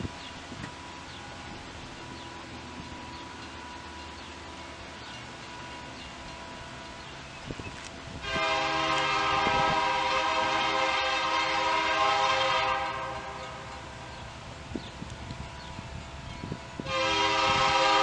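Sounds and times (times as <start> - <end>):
chime steam whistle blowing: 8.2 - 13.8, 16.4 - 18.0.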